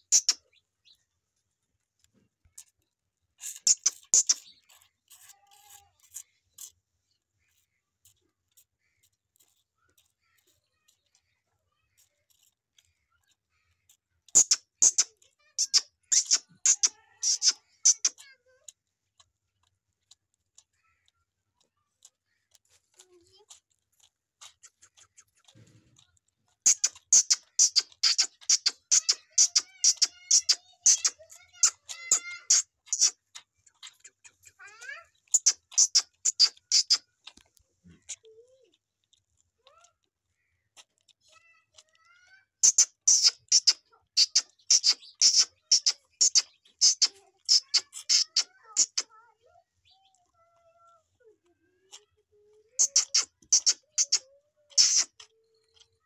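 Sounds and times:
calf sucking smacks: 3.4 - 6.8, 13.8 - 20.7, 21.6 - 38.4, 42.6 - 49.2, 52.8 - 55.9.

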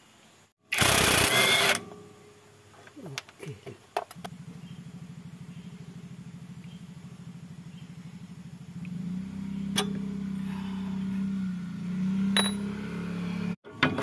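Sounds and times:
spanner clinking on metal bolt: 12.4 - 12.6.

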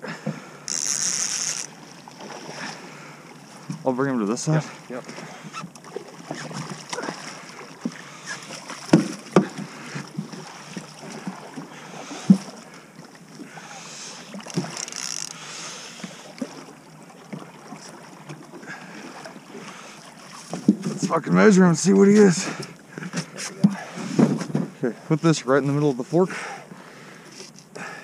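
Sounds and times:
fish splashing and thrashing: 0.0 - 3.9, 4.6 - 21.2
sharp knocks: 8.9 - 9.6.

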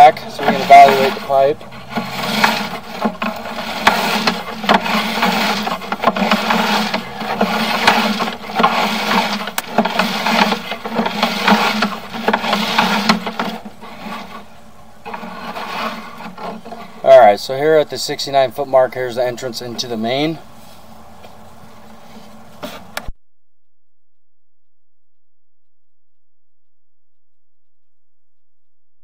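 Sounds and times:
cable scraping and rattling: 0.0 - 20.4.

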